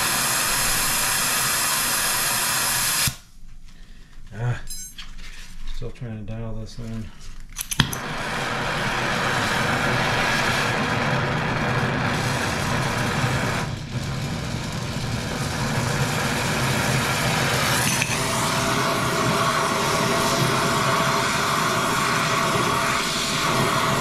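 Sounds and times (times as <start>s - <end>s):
torch flame hissing: 0.0s - 3.3s, 7.7s - 24.0s.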